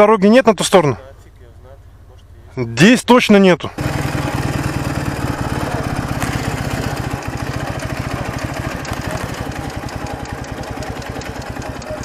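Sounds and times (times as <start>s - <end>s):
motorcycle engine idling: 3.8s - 12.0s.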